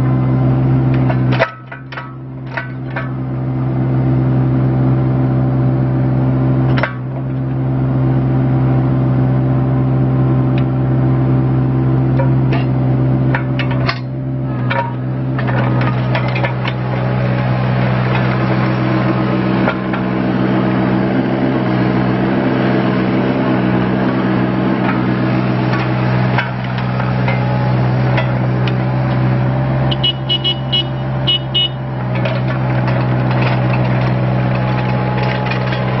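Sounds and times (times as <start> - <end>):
diesel engine running: 0.0 - 36.0
tracks clicking and knocking: 31.4 - 36.0.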